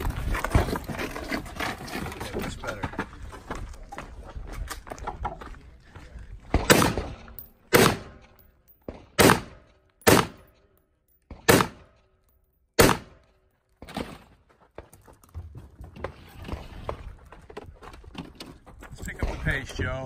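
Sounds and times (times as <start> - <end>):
gunshots: 6.5 - 10.5, 11.3 - 12.0, 12.8 - 13.2.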